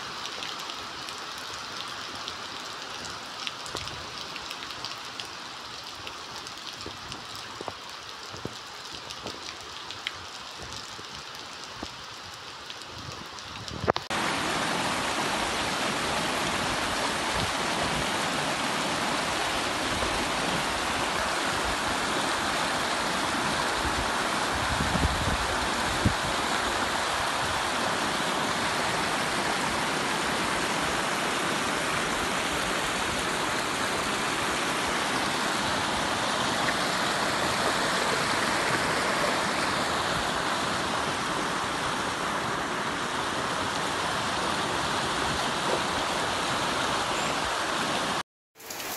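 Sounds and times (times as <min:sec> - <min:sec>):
flowing water rushing: 0:00.0 - 0:48.9.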